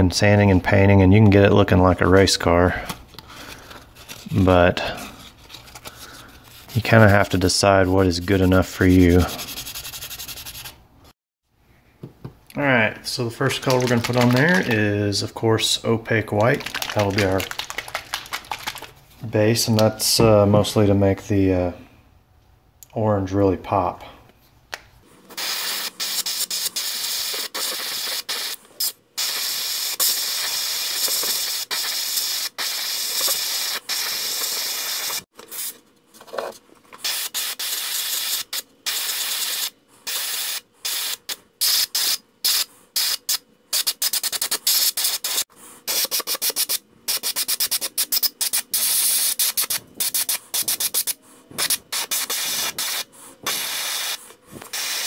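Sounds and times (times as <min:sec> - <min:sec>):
airbrush spraying in hissing bursts: 0:25.4 - 0:35.7, 0:37.0 - 0:55.0.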